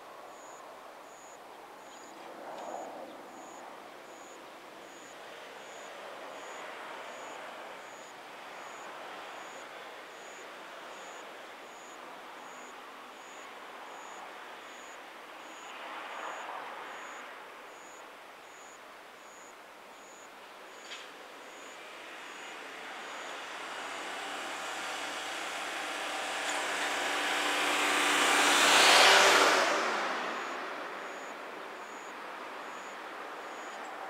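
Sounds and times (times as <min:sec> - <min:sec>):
distant vehicle hiss: 0:20.7 - 0:34.0.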